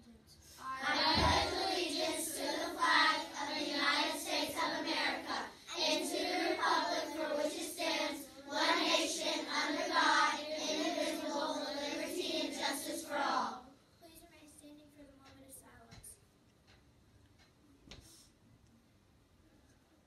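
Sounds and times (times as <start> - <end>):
children reciting in unison: 0.4 - 13.7.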